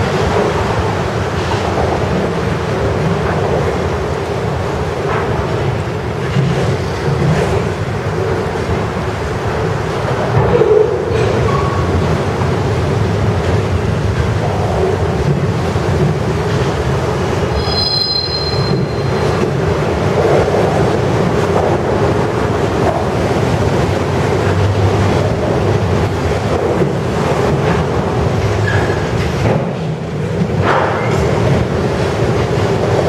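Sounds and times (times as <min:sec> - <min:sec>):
freight cars rumbling on rails: 0:00.0 - 0:33.0
wheel squeal: 0:17.6 - 0:19.3, 0:28.6 - 0:29.1.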